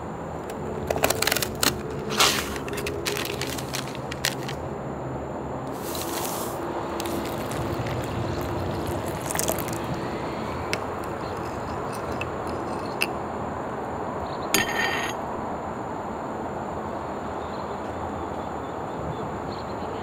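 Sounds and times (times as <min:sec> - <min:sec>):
hot water pouring into bowl: 0:05.7 - 0:12.9.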